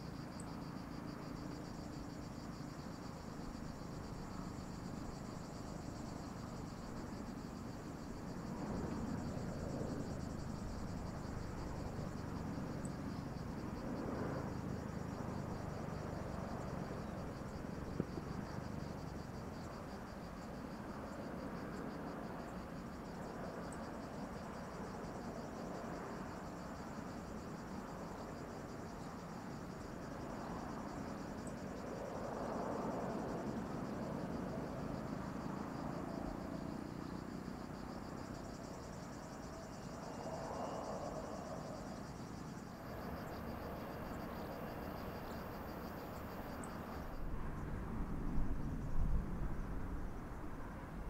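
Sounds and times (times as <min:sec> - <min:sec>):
insects chirring: 0:00.0 - 0:51.0
distant jet engine rumble: 0:39.9 - 0:51.0.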